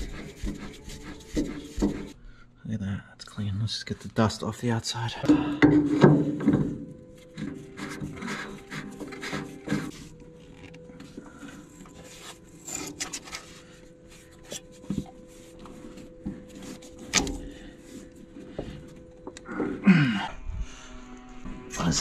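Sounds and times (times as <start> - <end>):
hand rubbing metal canister: 0.0 - 2.2, 5.7 - 19.8.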